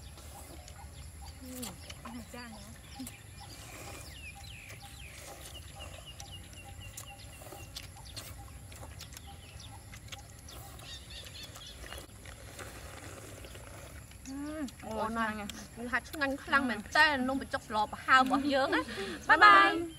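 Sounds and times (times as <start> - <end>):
bird chirping: 0.0 - 19.9
people slurping noodle soup: 1.4 - 9.3, 10.1 - 16.8.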